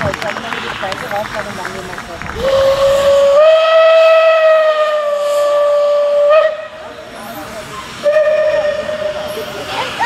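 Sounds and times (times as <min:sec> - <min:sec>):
hiss of steam: 0:00.4 - 0:10.0
steam locomotive whistle: 0:02.4 - 0:07.0, 0:08.0 - 0:09.5.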